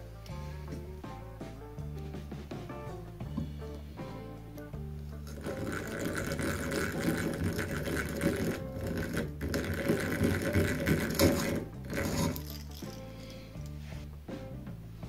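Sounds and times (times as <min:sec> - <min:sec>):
hand drill whirring: 0:05.3 - 0:13.0.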